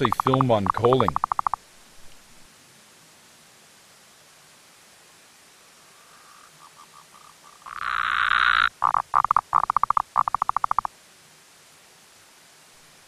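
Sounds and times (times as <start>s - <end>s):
tree frog calling: 0.0s - 2.2s, 5.8s - 10.9s.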